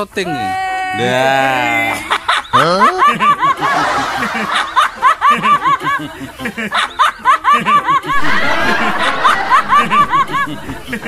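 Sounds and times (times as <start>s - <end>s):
lower laughter: 1.9s - 11.0s.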